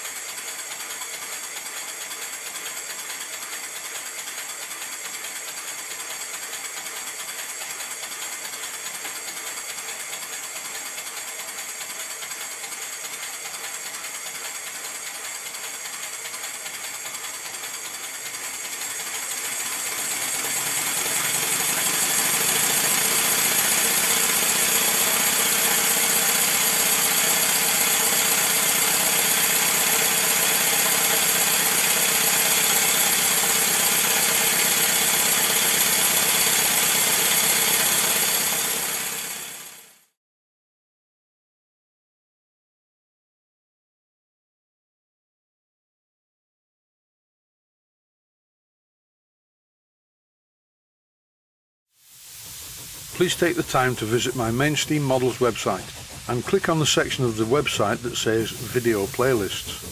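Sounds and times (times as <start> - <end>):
model steam engine running: 0.0 - 40.0, 52.1 - 59.9.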